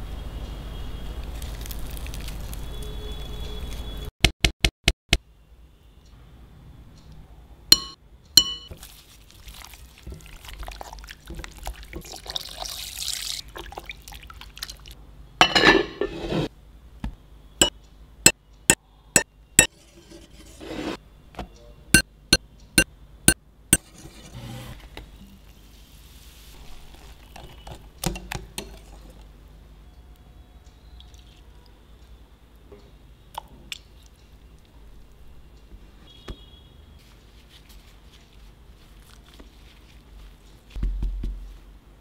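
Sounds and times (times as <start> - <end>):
soft handling noise: 37.0 - 41.8.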